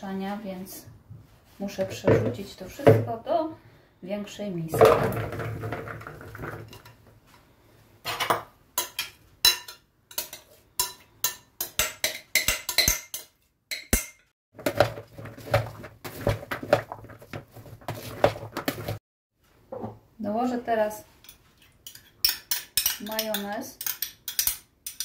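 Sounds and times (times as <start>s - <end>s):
spoon stirring moist salad: 8.8s - 12.8s.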